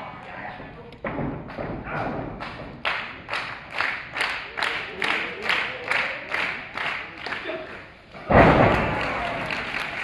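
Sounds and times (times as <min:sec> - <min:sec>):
crowd clapping in rhythm: 0:02.3 - 0:08.0, 0:08.7 - 0:10.0.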